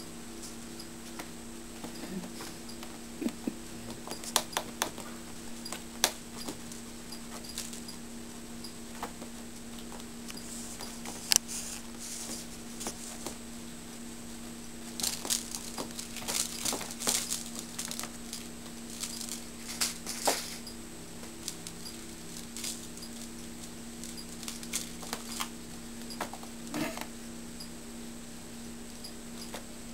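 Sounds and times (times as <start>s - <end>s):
steady low hum: 0.0s - 29.9s
kitten scratching fabric: 14.5s - 20.7s.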